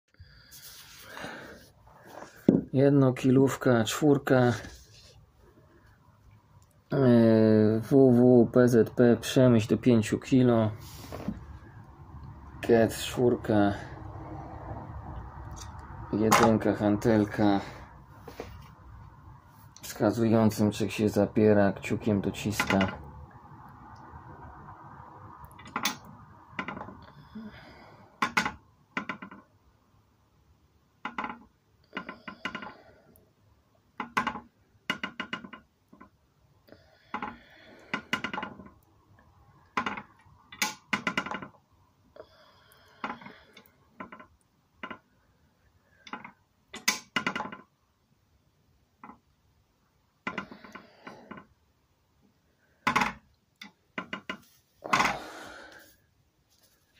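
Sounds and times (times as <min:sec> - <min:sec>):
metal balance scale clattering: 0:16.3 - 0:16.6.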